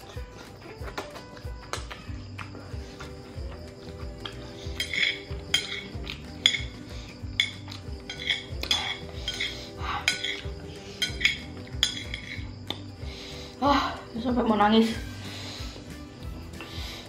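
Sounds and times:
soft background music: 0.0 - 17.0
chopsticks scraping a ceramic plate: 7.4 - 12.5.

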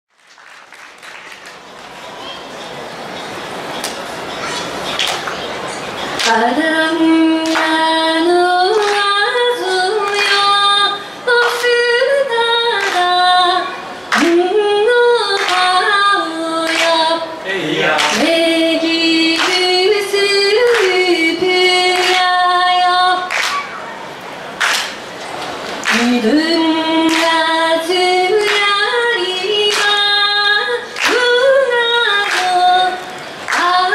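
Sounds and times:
hand claps: 0.1 - 2.0, 3.8 - 4.1, 4.9 - 5.5, 6.2 - 6.4, 7.4 - 7.8, 8.7 - 9.1, 10.0 - 10.5, 11.4 - 11.8, 12.8 - 13.2, 15.3 - 15.8, 16.6 - 17.2, 18.0 - 18.3, 19.3 - 19.7, 20.6 - 22.3, 23.2 - 23.8, 24.6 - 26.2, 27.0 - 27.5, 28.3 - 28.8, 29.6 - 30.2, 31.0 - 31.5, 32.1 - 33.9
woman singing unaccompanied: 6.2 - 17.4, 18.0 - 23.4, 25.9 - 33.9.

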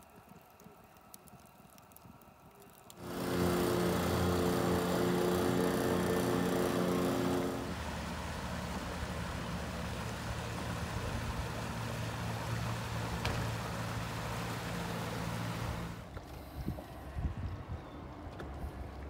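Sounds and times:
water wash: 0.0 - 16.2
outboard motor running: 3.0 - 16.5.

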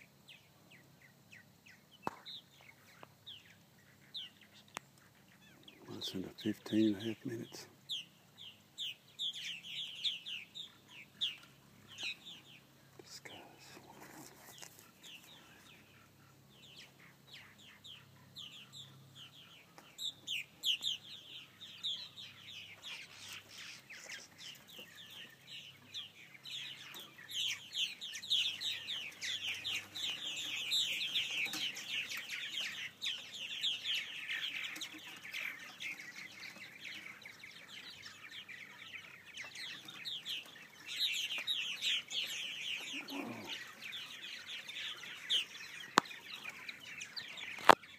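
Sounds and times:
birds chirping in flight: 14.5 - 47.9.

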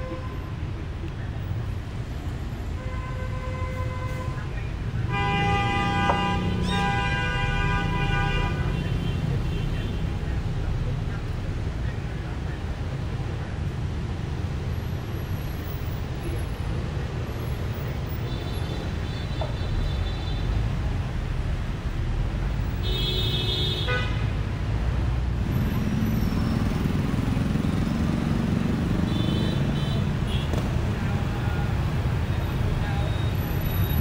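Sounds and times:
traffic rumble and road noise: 0.0 - 34.0
vehicle horn honking: 5.1 - 9.8.

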